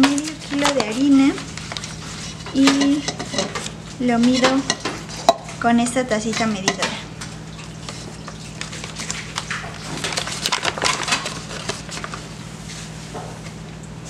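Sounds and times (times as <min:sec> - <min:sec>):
steady low hum: 0:00.0 - 0:14.0
paper bag crinkling: 0:00.1 - 0:02.5, 0:07.3 - 0:12.4.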